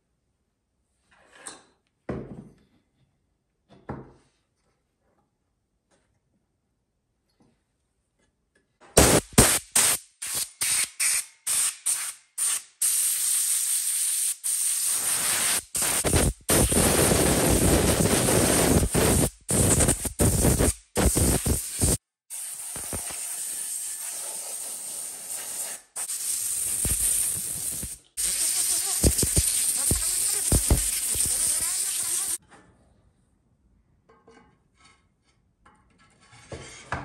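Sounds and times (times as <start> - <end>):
air duster hissing: 9.0 - 32.4.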